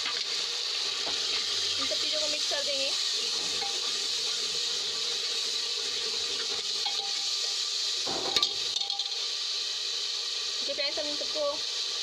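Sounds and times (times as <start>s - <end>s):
spices sizzling in a pot: 0.0s - 12.0s
metal ladle scraping and clinking: 6.5s - 7.4s.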